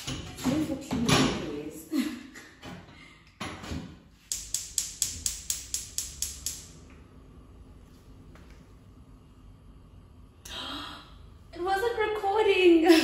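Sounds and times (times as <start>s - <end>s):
gas igniter clicking: 4.3s - 6.8s.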